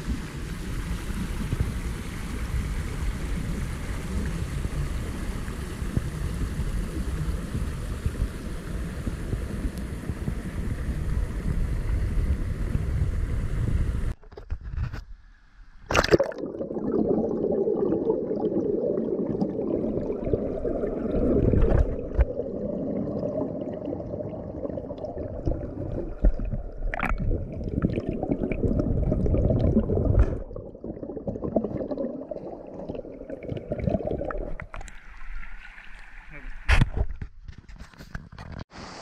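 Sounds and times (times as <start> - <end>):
water sloshing and gurgling: 15.8 - 38.7.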